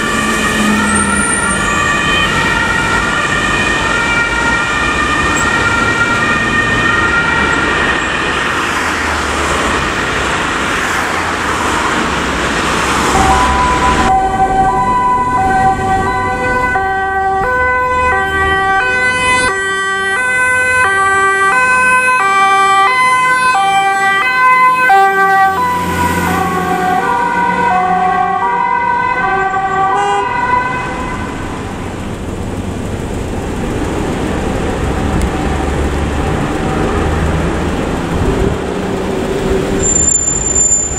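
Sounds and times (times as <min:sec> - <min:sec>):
two-tone siren horn: 0:00.0 - 0:08.7, 0:13.0 - 0:31.4, 0:39.8 - 0:40.9
fire engine siren sliding down: 0:00.0 - 0:40.9
traffic noise: 0:00.0 - 0:40.9
truck diesel engine running: 0:31.3 - 0:40.9.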